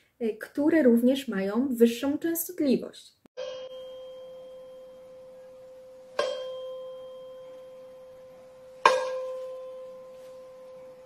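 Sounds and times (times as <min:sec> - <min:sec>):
mallet striking tuning fork: 0:03.4 - 0:11.0
tuning fork pure tone: 0:03.4 - 0:11.0.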